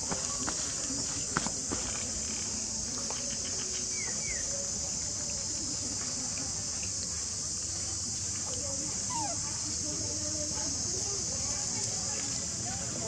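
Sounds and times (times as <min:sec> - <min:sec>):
high-pitched insect chorus: 0:00.0 - 0:13.0
faint ticks: 0:05.2 - 0:07.8.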